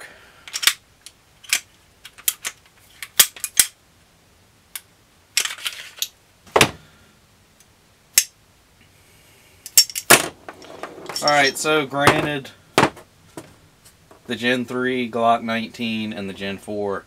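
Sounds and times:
pistol parts clicking and clacking: 0.4s - 3.8s, 4.8s - 6.2s, 8.1s - 8.4s, 9.7s - 11.6s.

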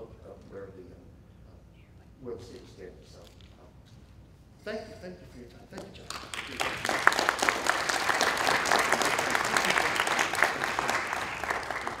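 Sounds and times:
audience applauding: 6.1s - 12.0s.

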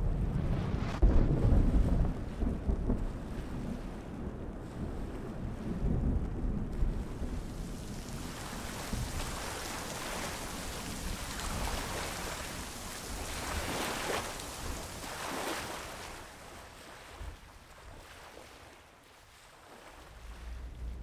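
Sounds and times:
waves splashing: 7.0s - 21.0s.

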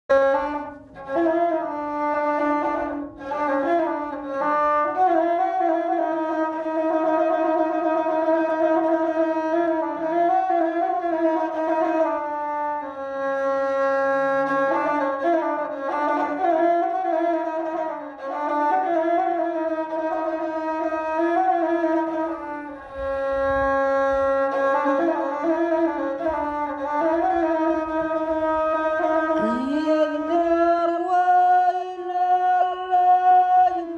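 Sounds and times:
bowed fiddle slow solo melody: 21.6s - 33.7s.

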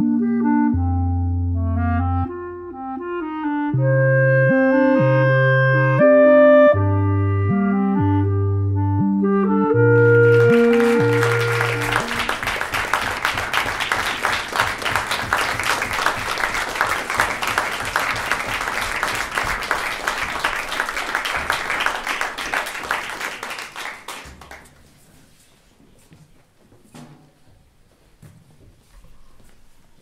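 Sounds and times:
clarinet ensemble held chord: 0.0s - 13.0s
audience applause: 10.0s - 24.7s.

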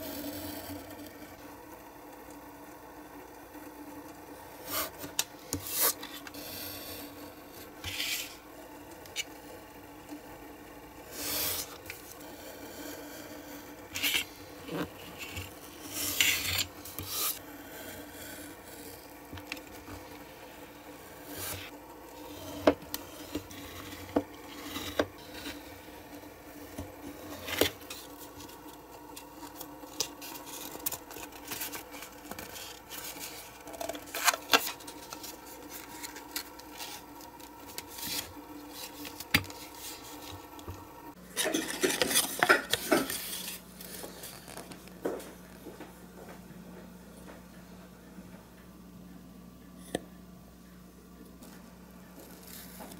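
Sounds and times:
faint hum: 0.0s - 52.9s
craft knife cutting cardboard: 4.6s - 7.0s, 11.1s - 12.2s, 13.9s - 19.6s, 21.2s - 37.1s
knife drawn along metal ruler: 7.8s - 8.4s, 13.9s - 18.9s
cardboard clicking and rubbing: 26.7s - 40.8s.

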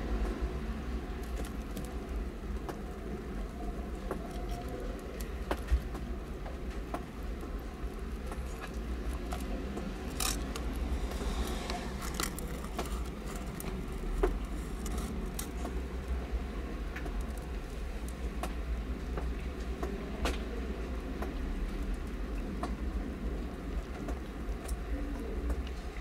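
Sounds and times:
steady low rumble: 0.0s - 24.5s
kittens suckling clicks and squishes: 1.0s - 20.4s.

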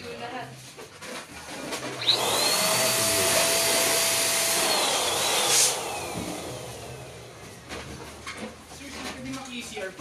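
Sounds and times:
electric balloon pump whining: 1.5s - 8.2s.

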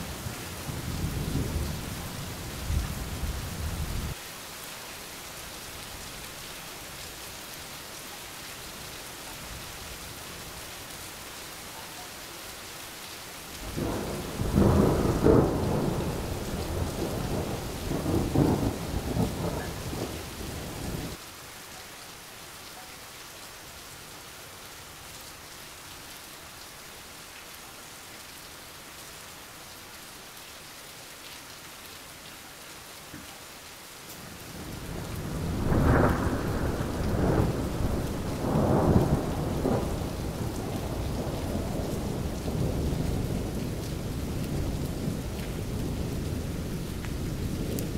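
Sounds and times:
rain hissing: 0.0s - 22.7s, 23.4s - 47.9s
thunder rumbling: 13.6s - 21.2s, 34.6s - 47.9s.

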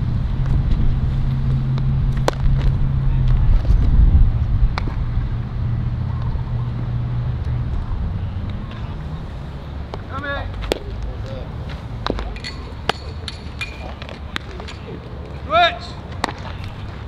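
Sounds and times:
low motor-like drone: 0.0s - 9.9s
low hum: 0.0s - 10.0s.

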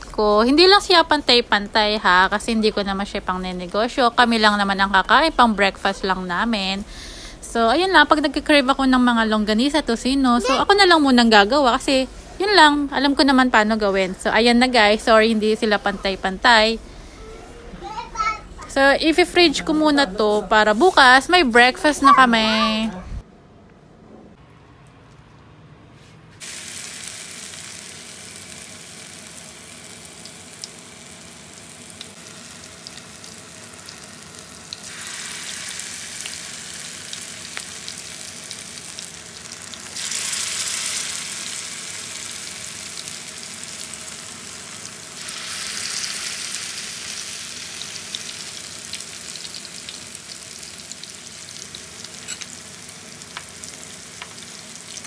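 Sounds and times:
sausage sizzling in oil: 26.4s - 55.0s.

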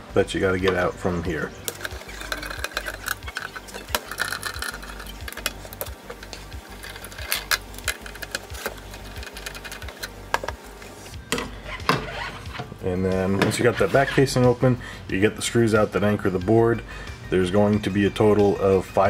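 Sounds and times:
background music with beat: 0.0s - 13.6s
small metal clinks: 1.7s - 10.1s
screwdriver turning screws: 1.7s - 10.6s.

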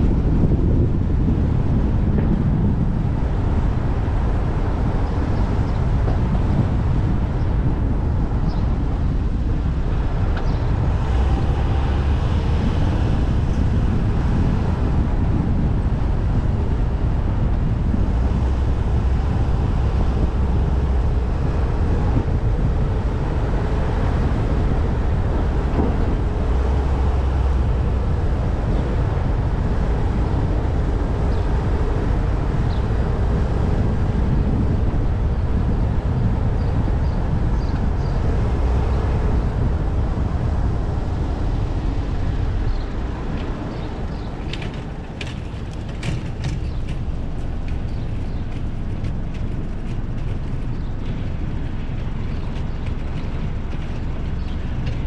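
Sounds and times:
street traffic rumble: 0.0s - 55.0s.

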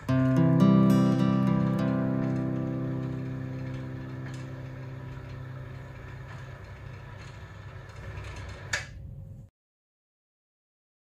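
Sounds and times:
acoustic guitar music: 0.0s - 7.3s.

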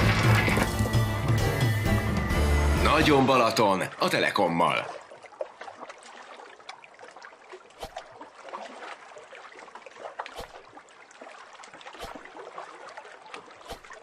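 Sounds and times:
water lapping and trickling: 0.0s - 14.0s
small splashes: 3.7s - 14.0s.

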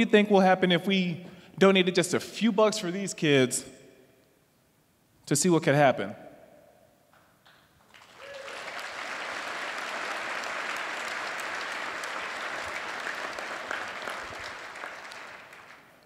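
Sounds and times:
audience applauding: 7.8s - 16.0s.

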